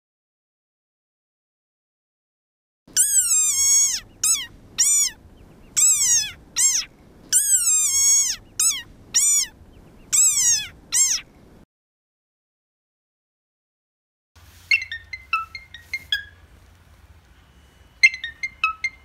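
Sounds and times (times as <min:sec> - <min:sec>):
frog squeaking: 0:03.0 - 0:05.2, 0:05.8 - 0:11.3, 0:14.7 - 0:16.4, 0:18.0 - 0:19.0.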